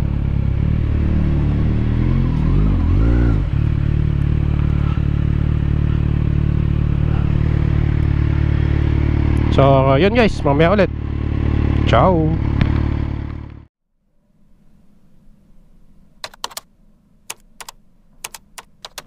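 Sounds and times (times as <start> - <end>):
second engine revving: 0.0 - 13.7
motorcycle engine idling: 3.5 - 13.6.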